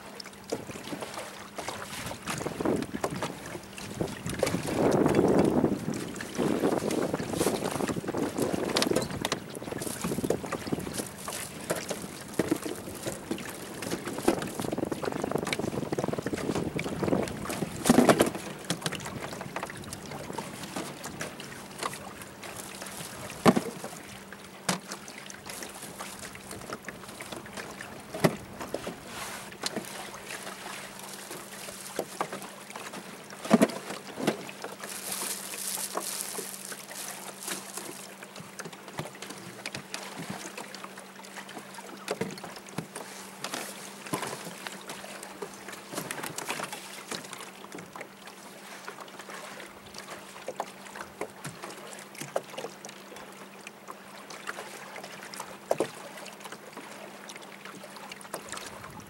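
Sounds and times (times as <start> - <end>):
water lapping against boat hull: 0.0 - 59.0.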